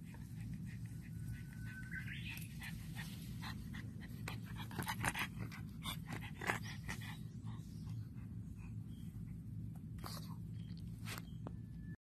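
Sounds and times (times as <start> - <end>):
dog panting: 0.0 - 10.3.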